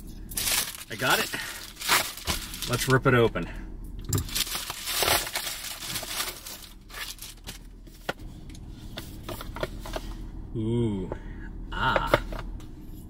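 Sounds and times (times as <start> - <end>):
plastic mailer tearing and crinkling: 0.4 - 3.0, 4.2 - 7.7.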